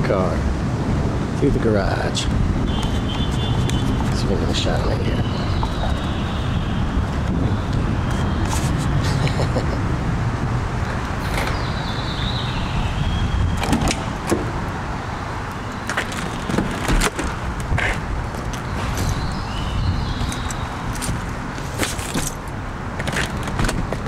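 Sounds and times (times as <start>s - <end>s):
car door unlocking and opening: 13.6s - 14.6s, 15.8s - 19.4s, 20.1s - 24.0s.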